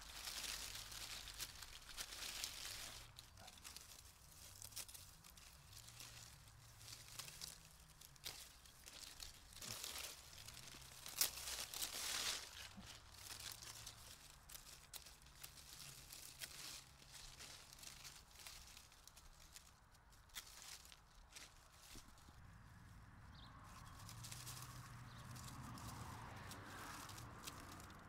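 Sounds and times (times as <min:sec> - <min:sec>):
secateurs snipping stalks: 0:00.0 - 0:21.0
leaves rustling and crumpling: 0:00.0 - 0:28.0.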